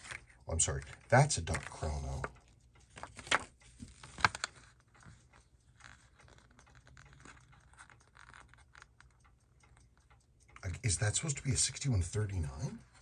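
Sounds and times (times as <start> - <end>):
paper pages crinkling: 0.0 - 9.2.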